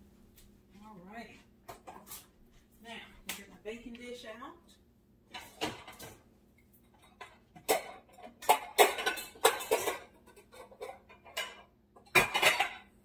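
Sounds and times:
dishes clattering together: 0:05.3 - 0:13.0.

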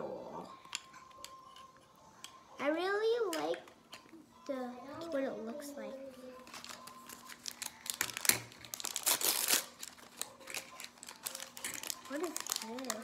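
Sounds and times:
packaging crinkling: 0:06.4 - 0:13.0.

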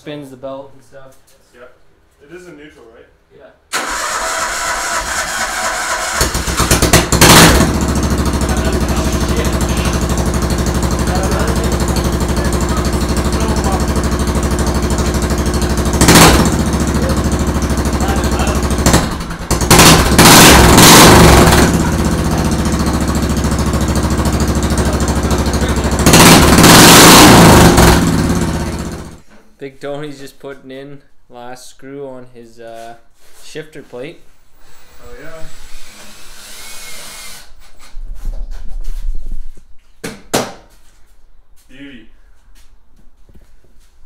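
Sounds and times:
riding mower engine revving: 0:03.8 - 0:29.2.

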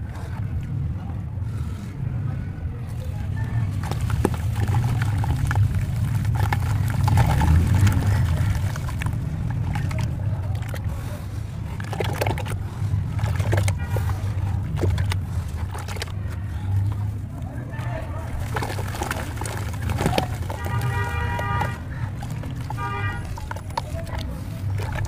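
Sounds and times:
hand squishing wet slurry: 0:00.0 - 0:25.0
block crumbling into water: 0:03.8 - 0:10.9, 0:11.8 - 0:12.6, 0:18.3 - 0:25.0.

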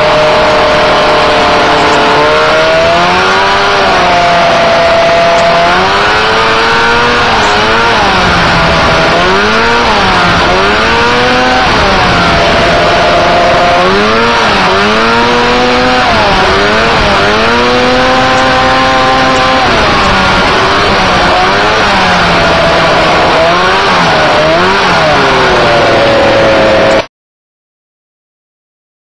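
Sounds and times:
buggy engine revving: 0:00.0 - 0:27.1
heavy rushing noise: 0:00.0 - 0:27.1.

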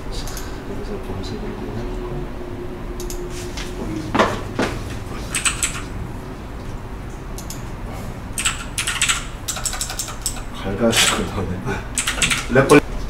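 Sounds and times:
keyboard key clicks: 0:05.3 - 0:05.9, 0:08.4 - 0:10.5.

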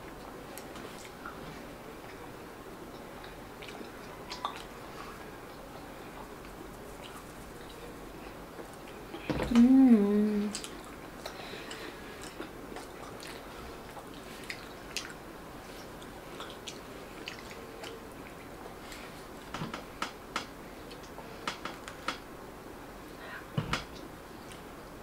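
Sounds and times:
chewing with wet mouth clicks: 0:02.9 - 0:04.8, 0:10.5 - 0:15.2, 0:15.8 - 0:19.1, 0:20.8 - 0:22.0.

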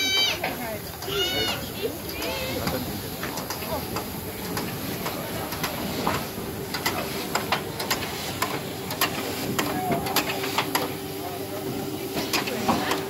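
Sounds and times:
steam and water spraying: 0:00.0 - 0:13.0
steam hissing: 0:00.0 - 0:13.0
sharp clicks and knocks: 0:02.1 - 0:10.9.

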